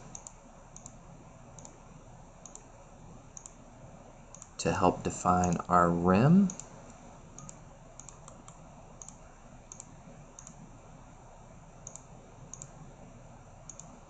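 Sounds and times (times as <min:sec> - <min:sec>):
faint computer mouse clicks: 0:00.1 - 0:01.0, 0:01.6 - 0:01.8, 0:02.4 - 0:02.7, 0:03.4 - 0:03.6, 0:04.3 - 0:04.6, 0:06.5 - 0:10.6, 0:11.8 - 0:12.8, 0:13.7 - 0:14.0.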